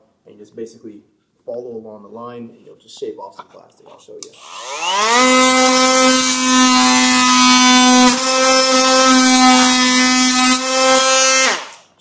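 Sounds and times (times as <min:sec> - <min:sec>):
oscillating multi-tool buzzing: 0:04.4 - 0:11.9.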